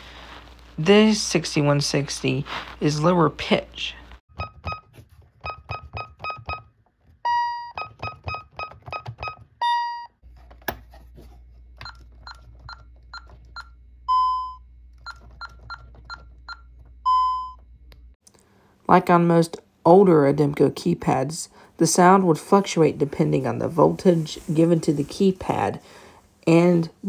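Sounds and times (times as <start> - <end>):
keypad key-press beeps: 4.4 - 10.1, 11.8 - 17.6.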